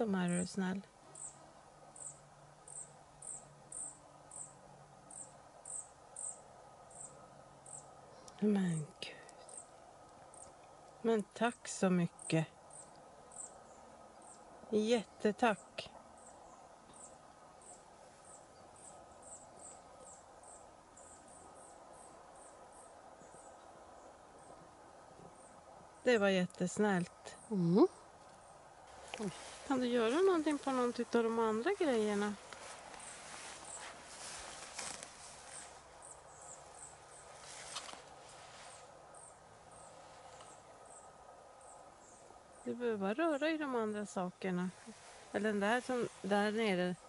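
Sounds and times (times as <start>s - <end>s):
crickets chirping: 1.0s - 8.4s, 12.1s - 14.5s, 16.1s - 26.1s, 27.0s - 43.9s
cricket chirping: 1.1s - 7.9s, 35.5s - 38.0s.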